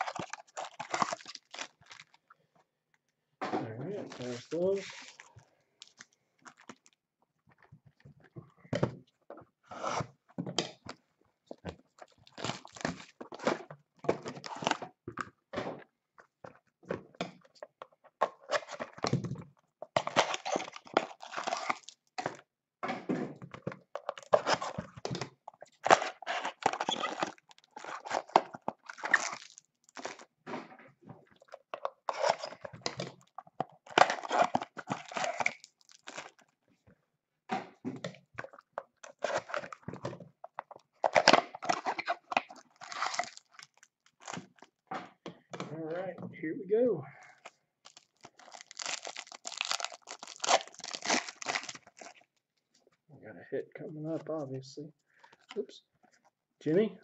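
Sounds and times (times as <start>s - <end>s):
foil wrappers tearing and crinkling: 0.0s - 2.2s, 4.1s - 6.9s, 12.0s - 13.4s, 20.0s - 22.1s, 25.7s - 30.3s, 31.4s - 36.5s, 40.7s - 44.8s, 47.8s - 52.3s.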